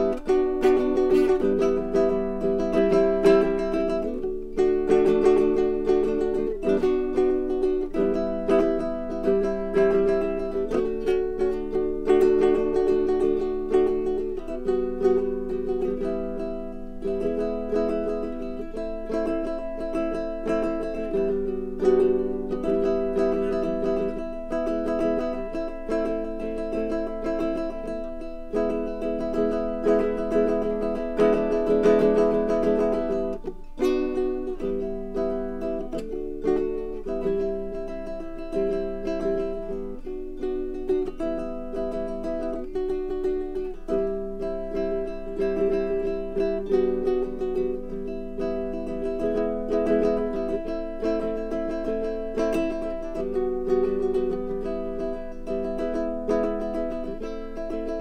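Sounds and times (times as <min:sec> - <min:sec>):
ukulele playing a tune: 0:00.0 - 0:58.0.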